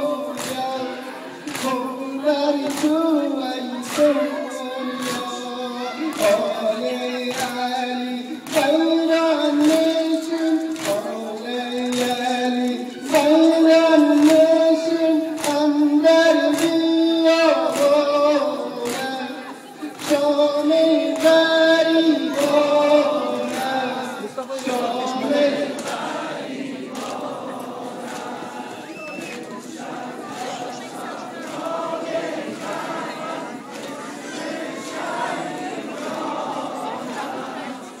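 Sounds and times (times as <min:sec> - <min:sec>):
group chanting a lament: 0:00.0 - 0:38.0
hands slapping chests: 0:01.4 - 0:01.9, 0:09.6 - 0:11.1, 0:15.4 - 0:15.8, 0:18.8 - 0:19.2, 0:26.9 - 0:27.3.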